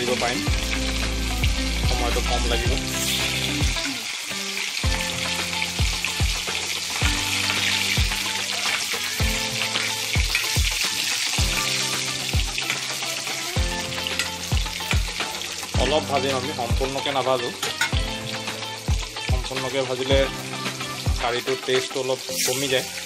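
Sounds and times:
fish sizzling in hot oil: 0.0s - 23.0s.

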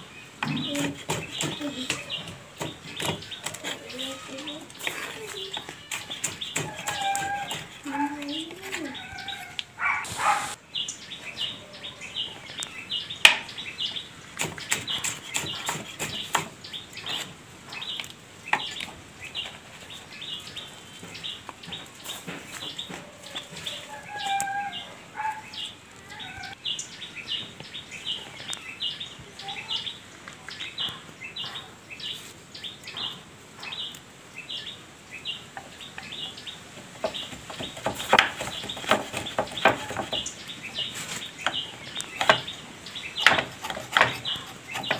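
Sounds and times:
birds chirping: 0.0s - 44.9s
knife chopping on wooden board: 0.4s - 3.8s, 4.8s - 7.8s, 14.4s - 17.3s, 37.0s - 40.2s, 43.2s - 44.9s.

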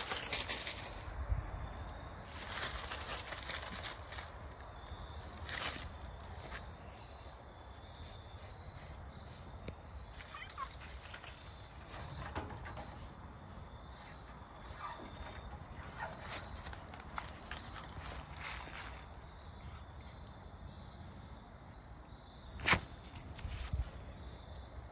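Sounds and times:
cat rustling through dry leaves: 0.0s - 1.2s, 2.2s - 7.0s, 10.1s - 12.1s, 15.8s - 19.2s, 22.6s - 23.9s
insect drone: 0.0s - 24.9s.

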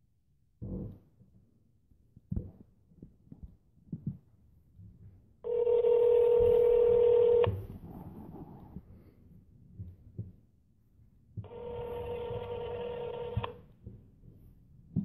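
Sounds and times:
telephone ringback tone: 5.5s - 7.6s, 11.5s - 13.6s.

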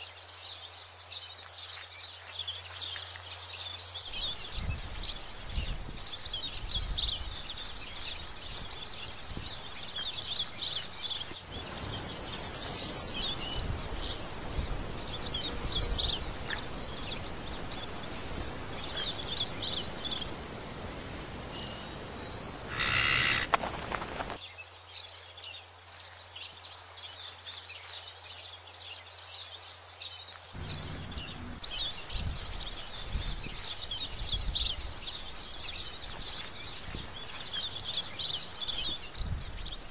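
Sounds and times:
high chirping: 8.0s - 24.4s, 30.6s - 39.0s.

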